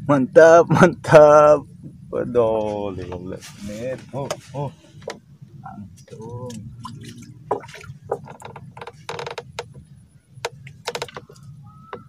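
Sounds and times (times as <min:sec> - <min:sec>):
wooden clicks and creaks: 0:04.2 - 0:05.2, 0:07.5 - 0:12.0.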